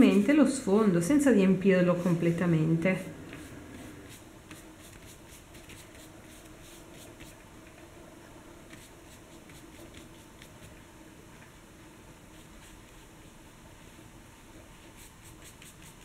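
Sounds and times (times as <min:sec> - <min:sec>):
faint room hum: 0:00.0 - 0:16.0
scratchy brush strokes on paper: 0:01.9 - 0:07.4, 0:08.7 - 0:10.8, 0:12.3 - 0:13.2, 0:14.8 - 0:16.0.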